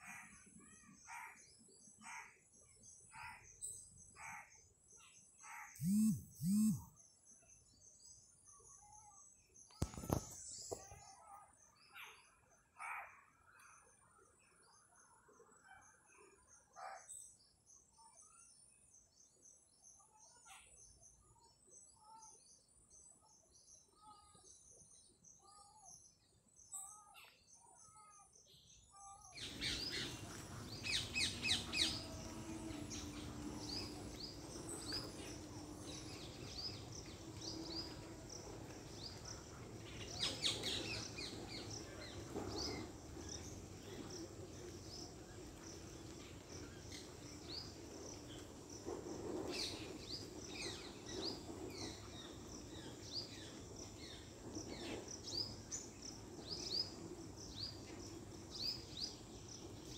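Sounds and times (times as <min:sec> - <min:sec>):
birds chirping: 0:05.7 - 0:06.9, 0:29.3 - 0:48.9
steady hiss with low hum: 0:29.4 - 0:59.9.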